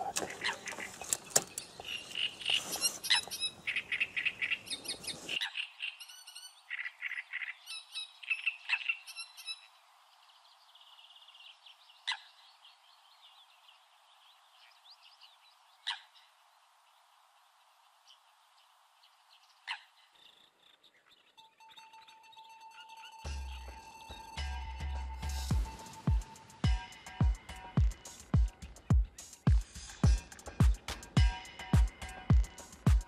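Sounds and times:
frogs croaking: 0.0s - 4.8s
birds calling: 0.0s - 33.0s.

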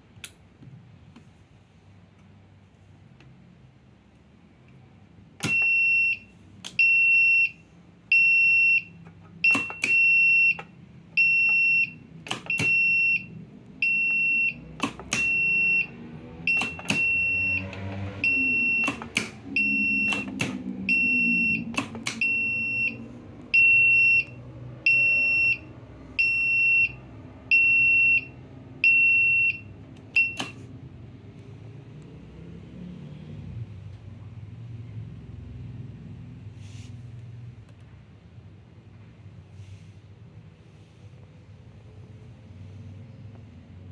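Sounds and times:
electronic buzzer beeping: 16.5s - 18.9s
sharp clicks: 21.7s - 22.3s.

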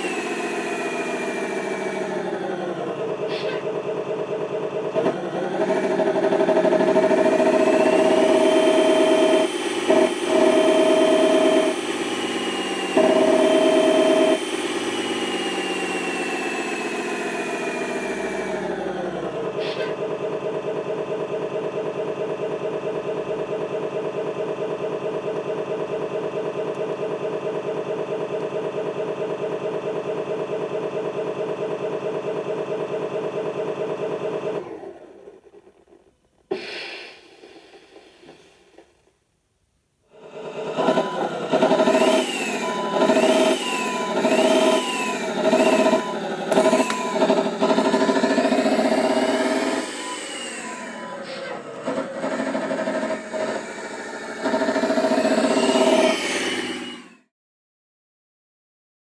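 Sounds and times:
diesel engine through small loudspeaker: 0.0s - 35.8s, 40.1s - 57.3s
loud steady tone blaring: 5.6s - 15.5s.

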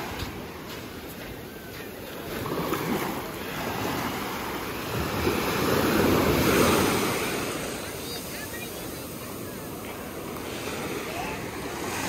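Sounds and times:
small ocean waves breaking: 0.0s - 12.0s.

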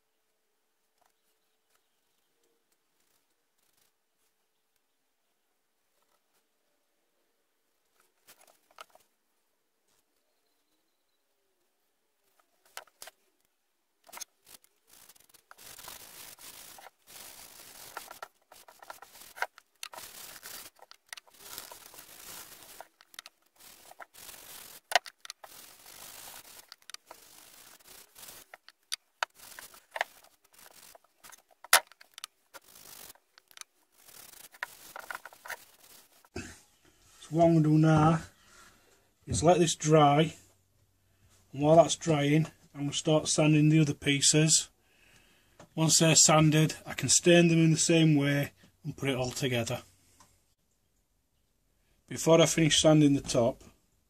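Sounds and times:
sharp clicks: 14.0s - 36.3s
cloth rag rubbing wood: 14.9s - 36.3s.

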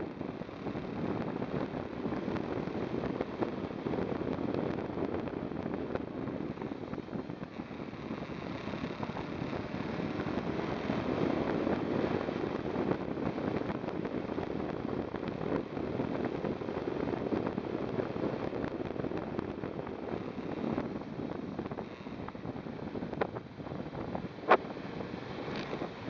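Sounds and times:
motorcycle engine running: 0.0s - 26.0s
wind rushing over microphone: 0.0s - 26.0s
faint ticks: 25.4s - 25.9s.

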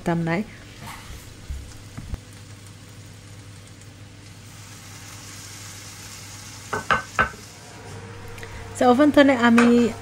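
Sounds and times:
low steady hum: 0.0s - 10.0s
meat sizzling in a frying pan: 0.9s - 7.7s.

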